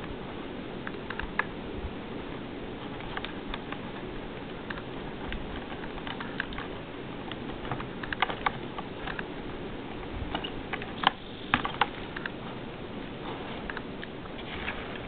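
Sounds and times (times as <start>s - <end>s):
steady low hiss: 0.0s - 15.0s
clicks of plastic connectors: 7.3s - 9.3s.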